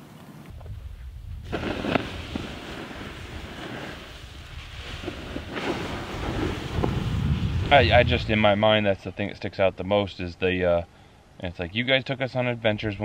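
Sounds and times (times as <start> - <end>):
wind buffeting microphone: 0.5 - 8.8.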